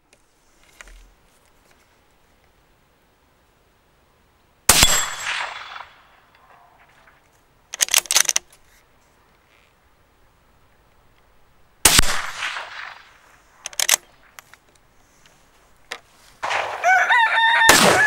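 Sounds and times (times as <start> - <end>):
rifle shot: 4.7 - 6.0, 11.8 - 13.2, 16.4 - 16.8, 17.6 - 18.0
rifle bolt clicking: 7.7 - 8.5, 13.6 - 14.1.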